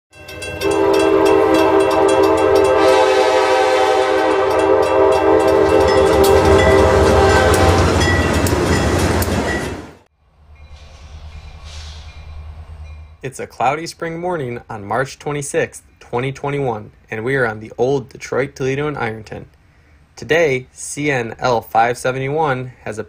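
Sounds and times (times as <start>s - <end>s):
crossing bell dings: 0.1s - 3.1s, 4.2s - 9.9s
locomotive engine rumble: 0.2s - 14.9s
locomotive air horn blast: 0.5s - 8.4s.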